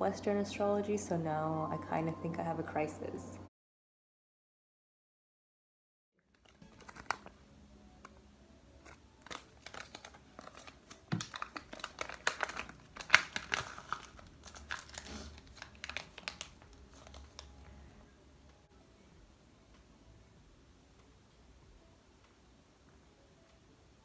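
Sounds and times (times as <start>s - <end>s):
plastic packet crinkling and tearing: 6.2s - 7.4s, 8.8s - 17.8s.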